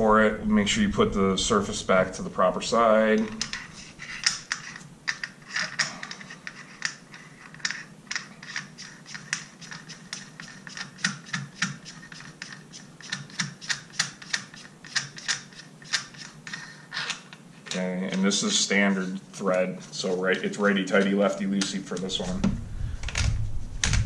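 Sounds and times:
metal nut clicking and scraping: 3.2s - 17.8s.

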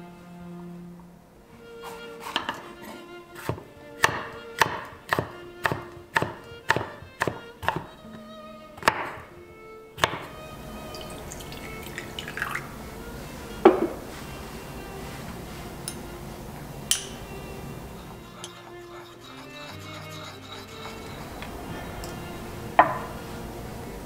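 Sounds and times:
gentle violin music: 0.0s - 24.0s
knife slicing pepper on board: 1.8s - 7.9s.

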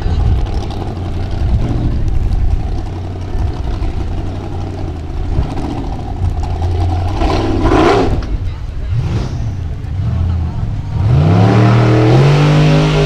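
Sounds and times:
buggy engine at low revs: 0.0s - 13.0s.

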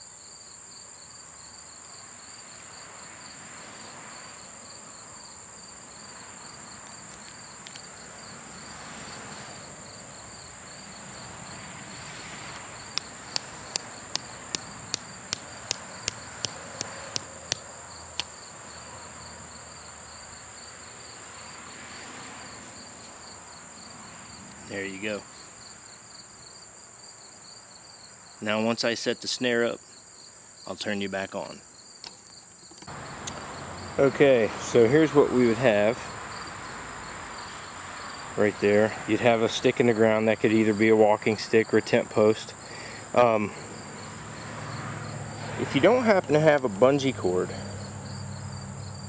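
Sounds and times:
insects chirring: 0.0s - 49.0s
hammer tapping stake into ground: 13.0s - 17.6s.

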